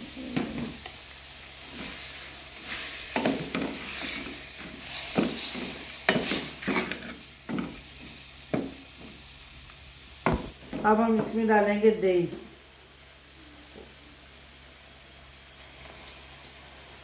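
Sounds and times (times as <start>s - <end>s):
meat sizzling: 0.0s - 17.0s
wooden spoon scraping metal pan: 3.8s - 7.2s.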